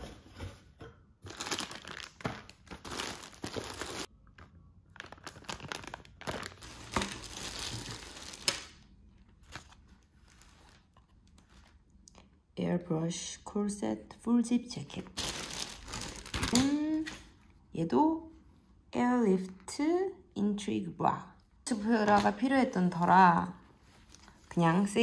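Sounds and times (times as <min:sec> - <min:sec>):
plastic bags crinkling: 0:01.3 - 0:11.0, 0:15.1 - 0:17.3.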